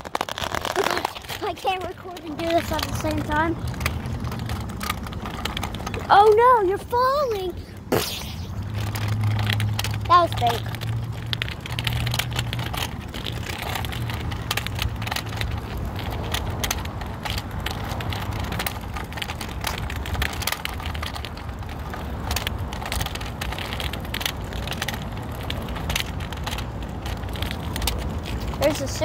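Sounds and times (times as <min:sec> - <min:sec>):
clicks and rattles: 0:00.0 - 0:07.5
scooter wheels rumbling on pavement: 0:00.0 - 0:29.0.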